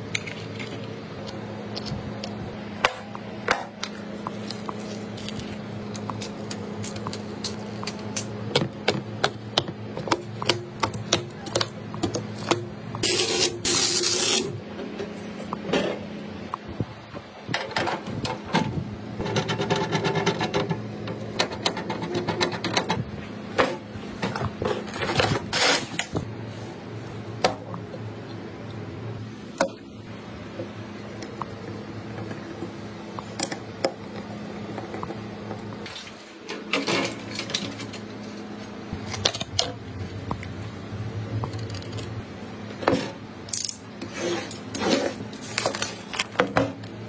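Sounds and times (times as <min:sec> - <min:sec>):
steady low hum: 0:00.0 - 0:47.0
plastic film crackling and tearing: 0:04.4 - 0:08.2.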